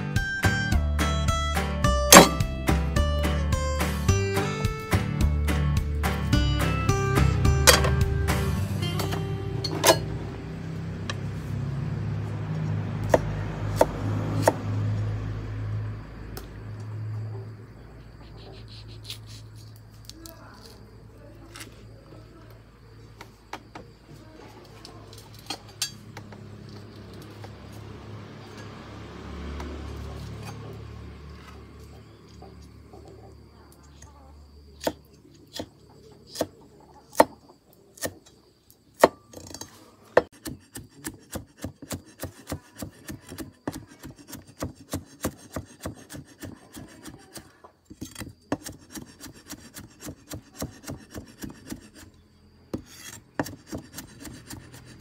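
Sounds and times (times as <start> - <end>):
cleaver chopping on wooden block: 2.1 - 2.4, 36.4 - 37.4, 39.0 - 39.3, 40.2 - 52.0, 52.7 - 54.9.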